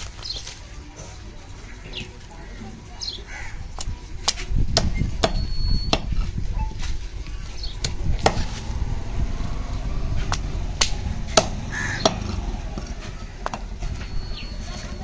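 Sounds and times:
blade chopping fish on wood: 0:07.8 - 0:08.5.

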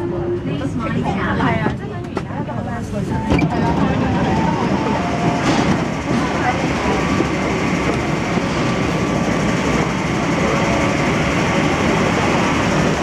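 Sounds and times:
train car hum: 0:00.0 - 0:13.0
station noise: 0:03.3 - 0:13.0.

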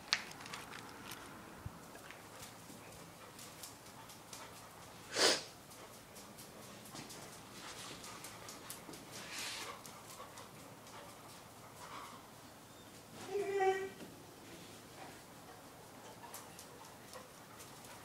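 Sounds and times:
paws clicking on concrete: 0:00.0 - 0:13.1, 0:14.8 - 0:18.0
dog sniffing: 0:09.2 - 0:09.9.

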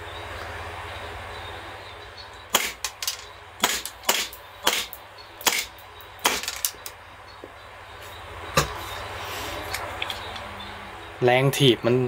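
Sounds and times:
airsoft pistol shots: 0:02.5 - 0:03.0, 0:03.6 - 0:06.6.

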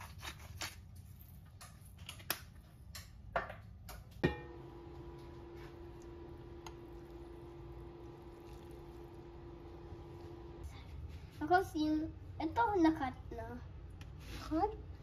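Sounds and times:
faint hum: 0:04.3 - 0:14.0.

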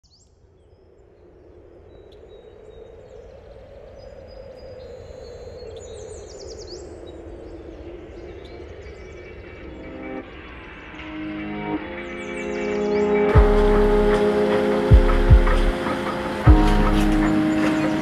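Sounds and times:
birds chirping: 0:00.0 - 0:18.0
outdoor ambience: 0:00.0 - 0:18.0.

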